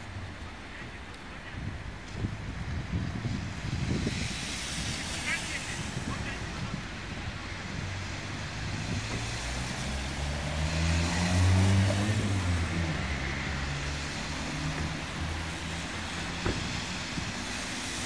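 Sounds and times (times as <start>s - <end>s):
tyres hissing on wet road: 0.0s - 18.0s
vehicle engine passing by: 7.6s - 18.0s.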